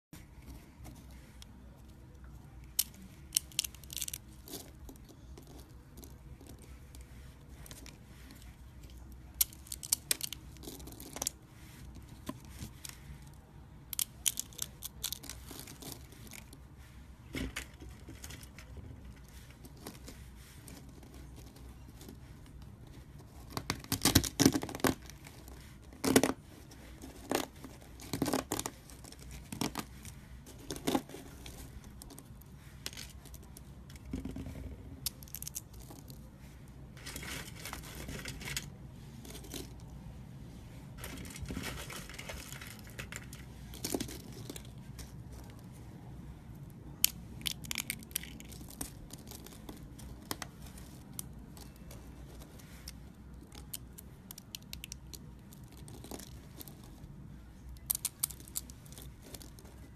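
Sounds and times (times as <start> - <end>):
soap shavings rustling: 2.7 - 39.9, 47.0 - 57.1
soap shavings crunching: 2.8 - 8.5.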